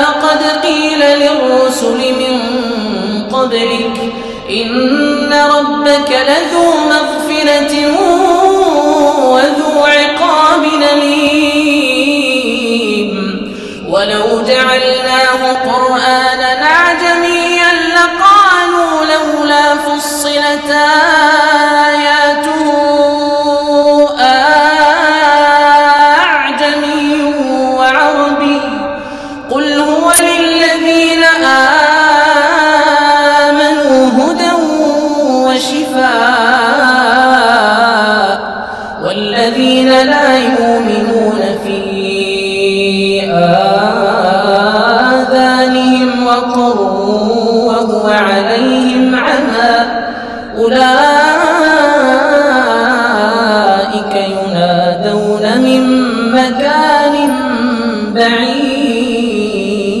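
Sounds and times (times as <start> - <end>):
man chanting through microphone: 0.0 - 60.0
man reciting melodically: 0.0 - 60.0.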